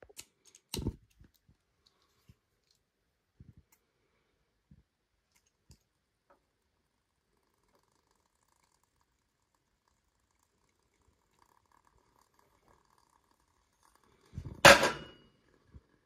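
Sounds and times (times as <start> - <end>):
metal bowl clanking on metal tray: 14.6 - 15.2.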